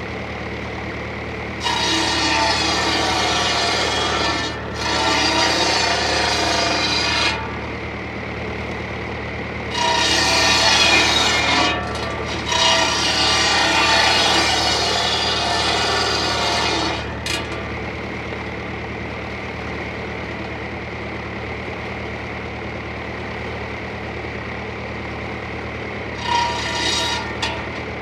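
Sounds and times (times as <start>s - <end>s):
tractor engine drone: 0.0s - 28.0s
circular saw cutting wood: 1.6s - 7.6s, 9.7s - 17.7s, 26.2s - 28.0s.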